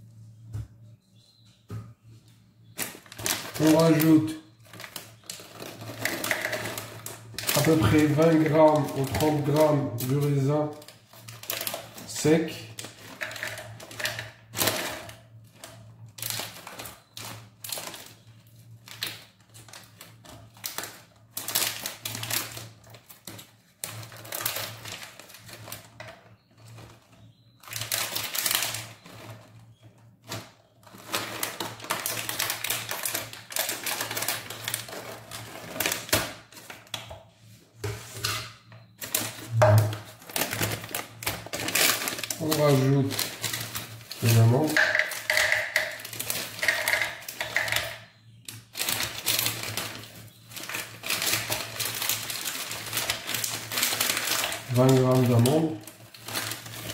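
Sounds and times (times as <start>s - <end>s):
plastic bag rustling: 2.4s - 56.9s
dried fruit dropping into cup: 44.6s - 46.0s.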